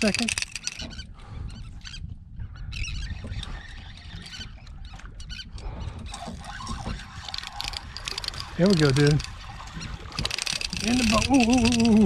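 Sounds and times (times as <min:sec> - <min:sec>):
fishing reel clicking: 0:00.0 - 0:00.9, 0:06.8 - 0:09.4, 0:10.2 - 0:12.0
wind rumble on microphone: 0:00.0 - 0:12.0.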